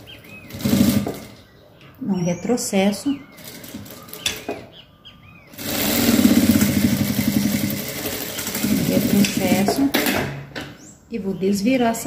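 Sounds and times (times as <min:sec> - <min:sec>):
sewing machine stitching: 0:00.4 - 0:01.4, 0:05.5 - 0:10.2.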